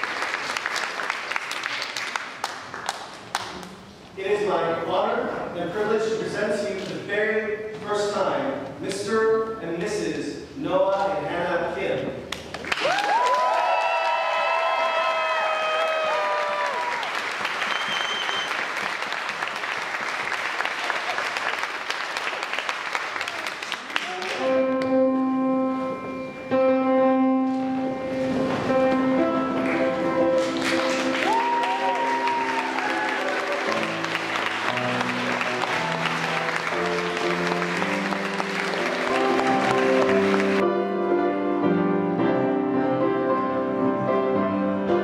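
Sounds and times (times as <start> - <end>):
audience applauding: 0.0 - 3.8, 12.3 - 24.6, 29.6 - 40.6.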